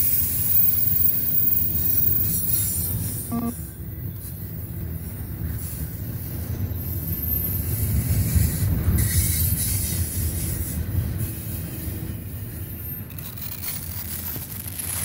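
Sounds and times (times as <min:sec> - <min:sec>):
train wheels rumbling on rail: 0:00.0 - 0:15.0
high-pitched squeal: 0:01.2 - 0:03.5.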